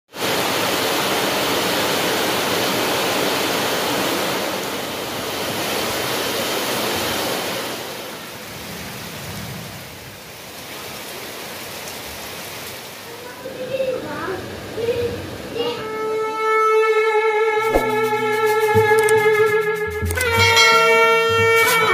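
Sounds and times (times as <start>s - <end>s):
heavy rain pouring: 0.2s - 15.9s.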